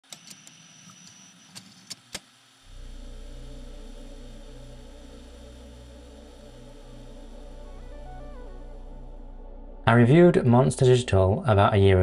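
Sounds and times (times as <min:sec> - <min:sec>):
low drone music bed: 0:02.7 - 0:12.0.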